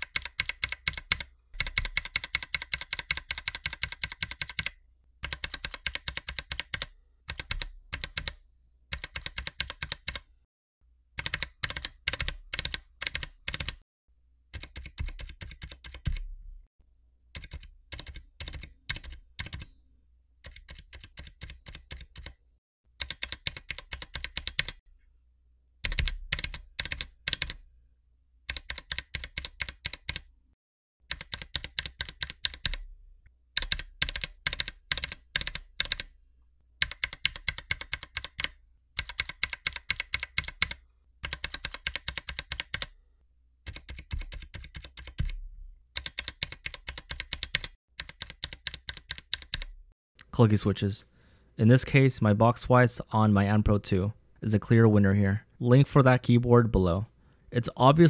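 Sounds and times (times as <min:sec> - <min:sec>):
mechanical keyboard keystrokes: 0:00.0 - 0:10.2, 0:11.2 - 0:13.8, 0:14.6 - 0:16.3, 0:17.4 - 0:19.7, 0:23.0 - 0:24.8, 0:25.8 - 0:27.6, 0:28.5 - 0:30.2, 0:31.1 - 0:32.8, 0:33.6 - 0:36.1, 0:36.8 - 0:42.9, 0:43.7 - 0:45.4, 0:46.0 - 0:49.7.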